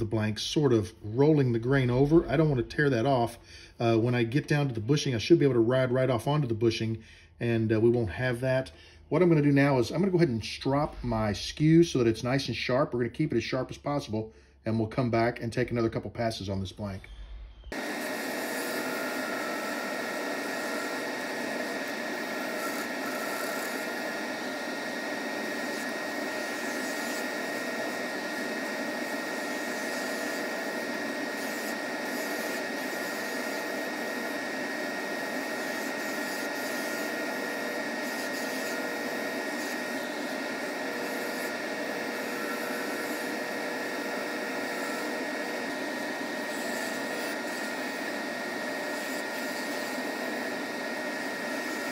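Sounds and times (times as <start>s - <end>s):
chisel cutting spinning wood: 17.1s - 51.9s
wood lathe whirring: 17.7s - 51.9s.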